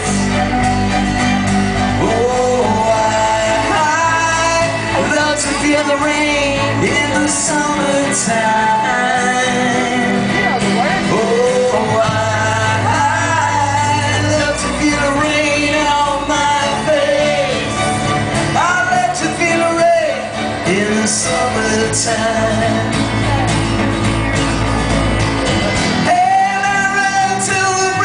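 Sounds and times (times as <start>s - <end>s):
drums: 0.0s - 8.9s, 20.4s - 28.0s
man singing: 0.0s - 23.6s, 25.8s - 28.0s
acoustic guitars strummed: 0.0s - 28.0s
live rock band playing: 0.0s - 28.0s.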